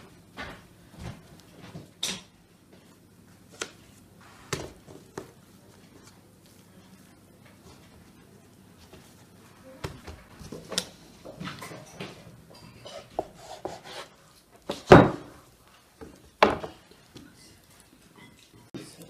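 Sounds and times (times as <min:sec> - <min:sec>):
hands knocking and rubbing dough: 0:03.5 - 0:06.1, 0:16.0 - 0:17.3.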